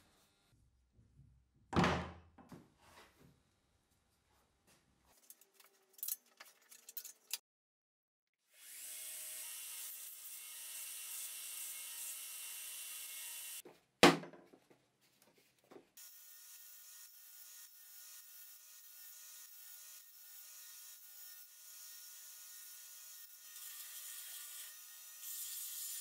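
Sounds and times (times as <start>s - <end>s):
metal parts clicking and tapping: 5.2s - 7.4s.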